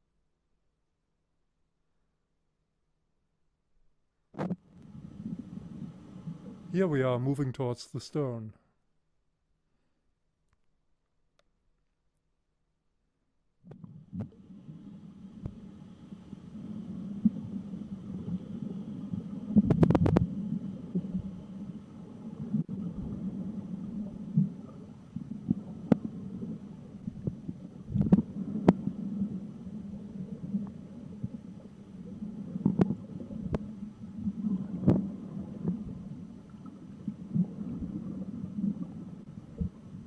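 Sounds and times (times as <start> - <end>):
muffled underwater rumble: 4.4 - 7.4, 13.7 - 40.0.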